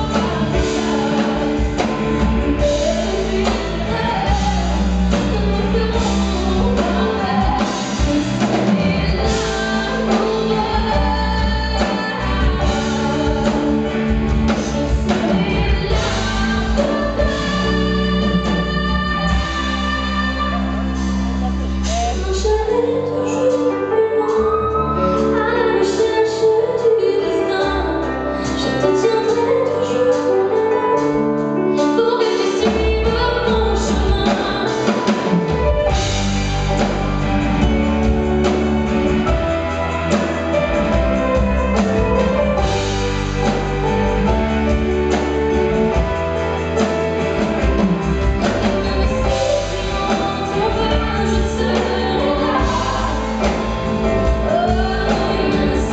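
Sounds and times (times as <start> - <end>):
woman singing pop song: 0.0 - 36.1, 47.7 - 55.9
band playing: 0.0 - 55.9.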